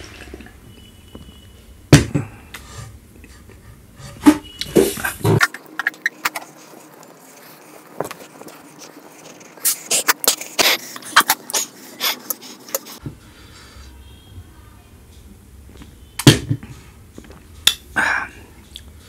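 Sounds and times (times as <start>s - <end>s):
mouth clicks and smacks eating: 5.4s - 13.0s.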